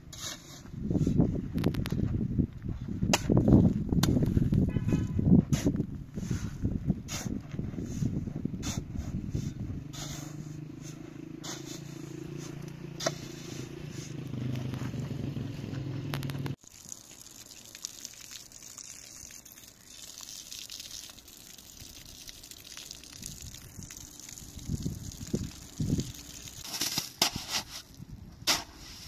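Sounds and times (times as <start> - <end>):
shovel scraping through sand mix: 0.0 - 1.3, 5.4 - 14.9, 26.4 - 29.0
low rumble: 6.8 - 12.6.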